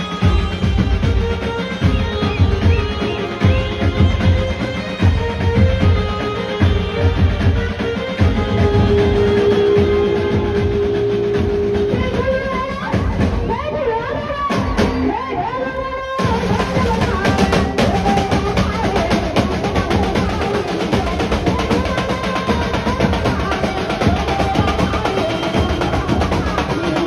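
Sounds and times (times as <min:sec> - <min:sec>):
fast dense drumming: 0:00.0 - 0:13.7, 0:16.2 - 0:27.0
melody with sliding pitch: 0:08.2 - 0:13.3.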